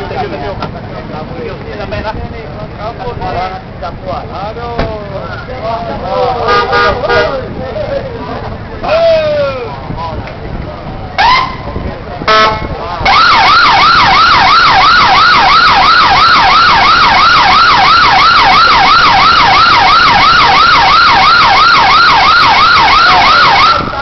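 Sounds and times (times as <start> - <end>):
police siren yelping: 11.2 - 11.6, 12.3 - 24.0.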